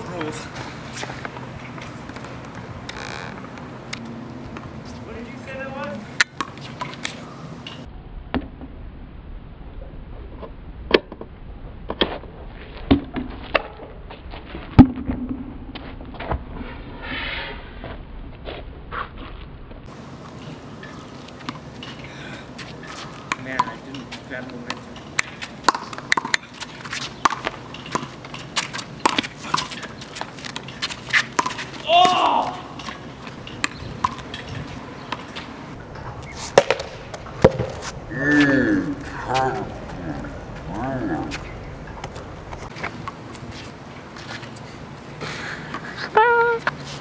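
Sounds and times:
rubber ball bouncing on concrete: 24.6s - 26.5s.

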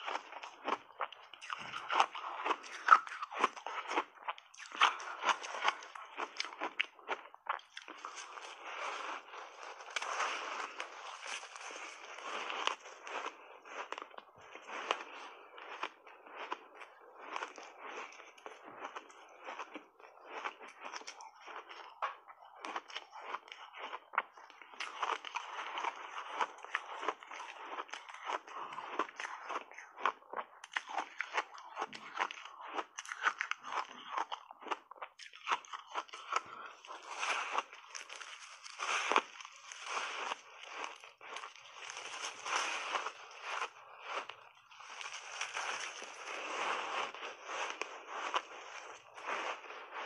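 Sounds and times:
crunching ice chunks: 37.0s - 43.7s, 44.8s - 46.8s.

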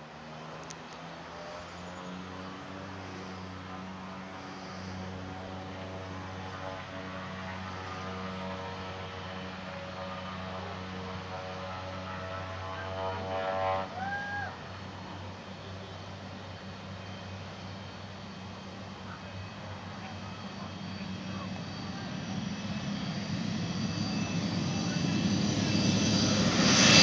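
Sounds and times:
propeller aircraft engine drone: 0.0s - 27.0s.

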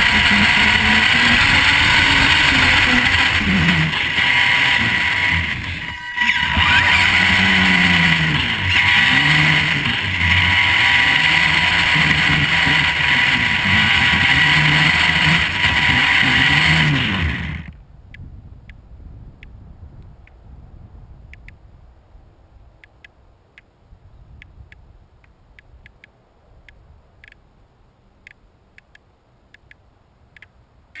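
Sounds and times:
electric motor whine: 0.0s - 17.7s
tyres on gravel: 0.0s - 17.7s.

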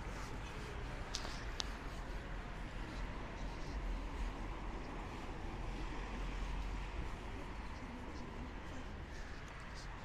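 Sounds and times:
distant traffic hum: 0.0s - 10.0s.

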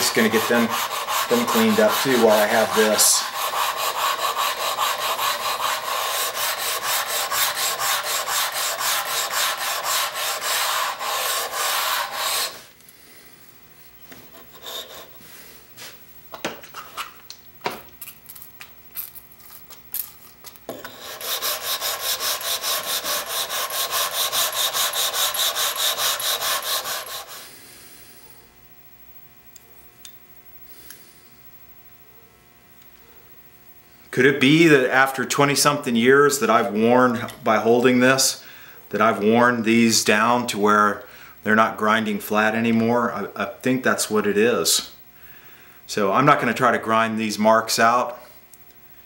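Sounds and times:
metal rasping on abrasive paper: 0.0s - 12.7s, 20.9s - 27.5s.

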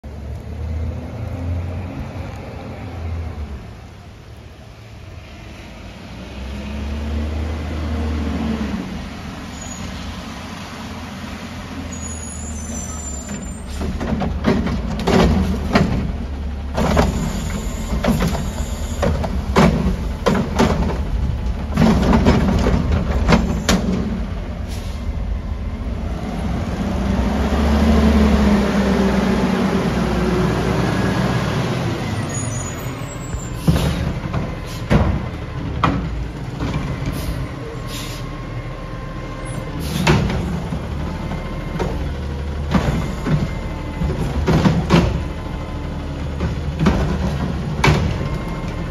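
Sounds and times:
diesel engine droning: 0.0s - 48.9s
garbage cart knocks and bangs: 13.8s - 24.2s, 44.2s - 45.3s.

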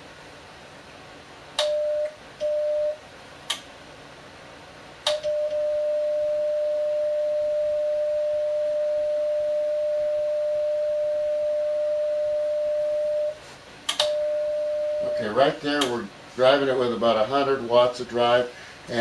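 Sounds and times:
click: 1.6s - 2.2s, 3.5s - 3.7s, 5.0s - 5.4s, 13.9s - 14.2s
steady morse sidetone: 5.2s - 13.4s, 14.0s - 15.8s.

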